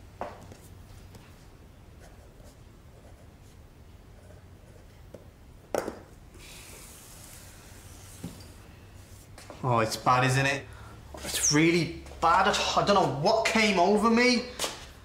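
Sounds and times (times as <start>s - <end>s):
pen scratching on notepad: 2.0s - 3.6s, 4.2s - 5.0s.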